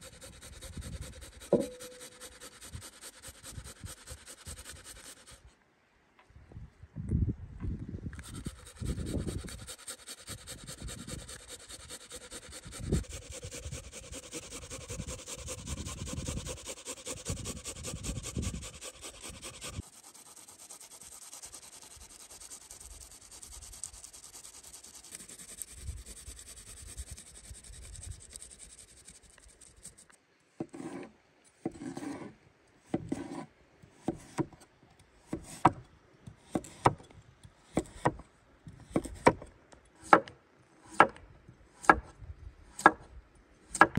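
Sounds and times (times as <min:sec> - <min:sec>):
vegetables rasping on a box grater: 0:00.0 - 0:05.4, 0:08.2 - 0:28.7
knife chopping on a wooden board: 0:01.4 - 0:02.1.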